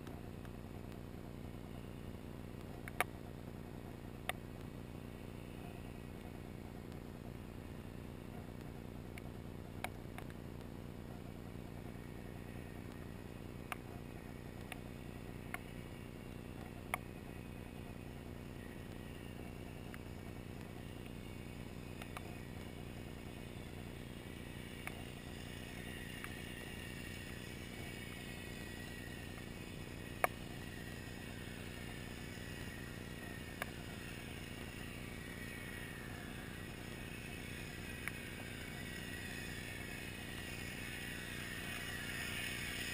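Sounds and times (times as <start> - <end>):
steady low underwater hum: 0.0 - 42.9
sharp clicks: 2.6 - 3.2, 8.6 - 10.7, 13.7 - 17.4, 18.6 - 23.9, 24.8 - 42.9
distant boat motor whine: 10.9 - 42.9.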